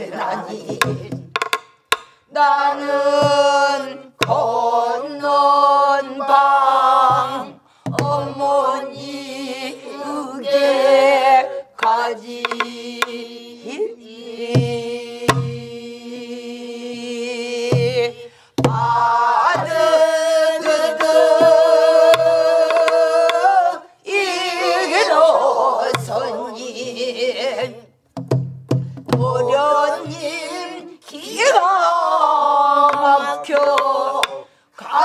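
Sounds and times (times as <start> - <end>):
woman singing with vibrato: 0.0 - 1.3, 2.3 - 28.0, 29.2 - 35.0
drumstick clicks: 0.8 - 2.2, 11.8 - 13.2, 22.1 - 23.4, 32.9 - 34.4
barrel drum thuds: 28.2 - 29.4.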